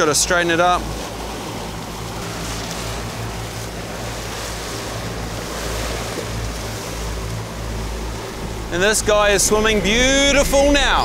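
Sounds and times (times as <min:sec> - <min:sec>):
boat motor humming: 0:00.0 - 0:11.0
water churning in boat wake: 0:00.0 - 0:11.0.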